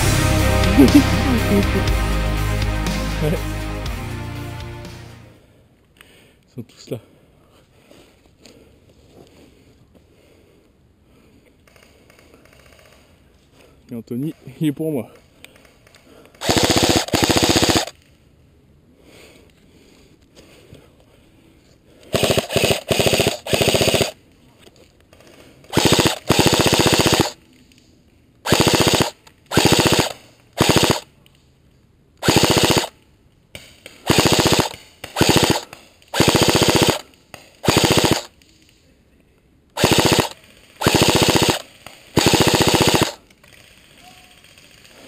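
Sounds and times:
airsoft rifle automatic bursts: 0:16.4 - 0:18.0, 0:22.1 - 0:24.2, 0:25.7 - 0:27.4, 0:28.5 - 0:31.1, 0:32.2 - 0:33.0, 0:34.0 - 0:38.4, 0:39.8 - 0:45.0.

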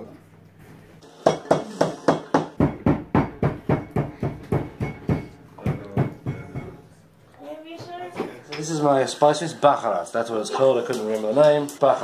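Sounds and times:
mortar and pestle knocking: 0:01.2 - 0:06.8.

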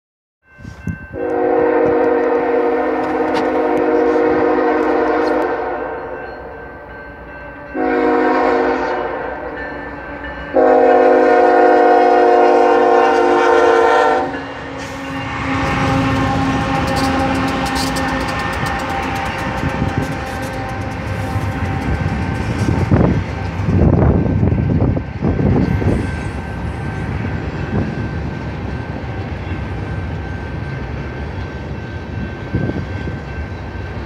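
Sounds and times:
train rumble and wheel noise: 0:00.4 - 0:34.0
train air horn blasts: 0:00.6 - 0:06.2, 0:07.7 - 0:26.8.

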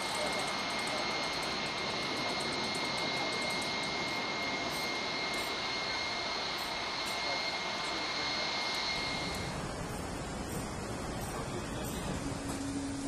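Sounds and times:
high-pitched whine: 0:00.0 - 0:10.3.

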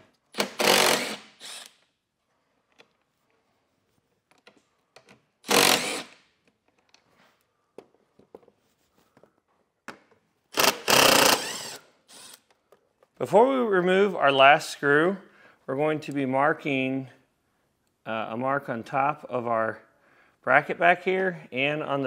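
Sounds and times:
cordless driver whirring: 0:00.4 - 0:01.8, 0:05.5 - 0:06.2, 0:10.6 - 0:12.5.

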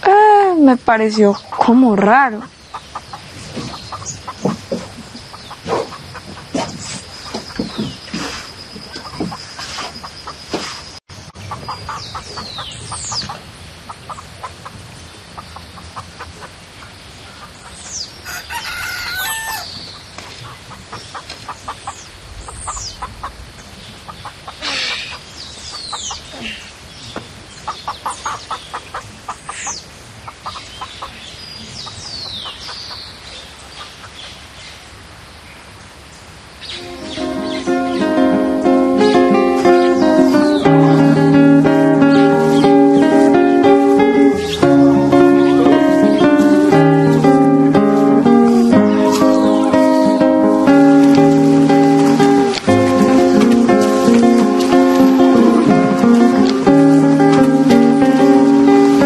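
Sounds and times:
birds high falling calls: 0:01.0 - 0:34.8, 0:36.6 - 0:59.0
hens clucking: 0:01.1 - 0:10.8, 0:11.4 - 0:23.4, 0:24.0 - 0:26.6, 0:27.7 - 0:33.1, 0:36.8 - 0:59.0
rooster crowing: 0:18.2 - 0:19.8.

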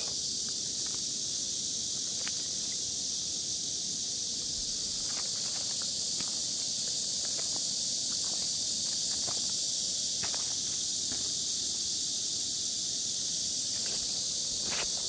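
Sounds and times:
high-pitched insect chorus: 0:00.0 - 0:15.0.

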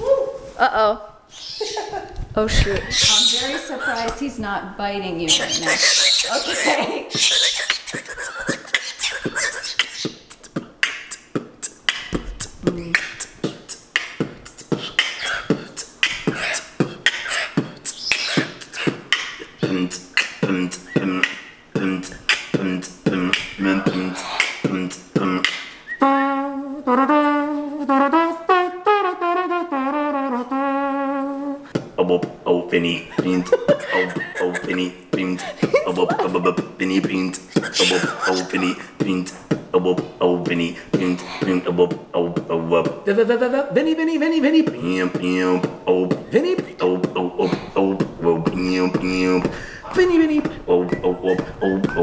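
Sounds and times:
wavering vocal tone: 0:05.2 - 0:27.0, 0:32.0 - 0:52.0
man beatboxing: 0:05.4 - 0:26.0, 0:31.6 - 0:52.0.

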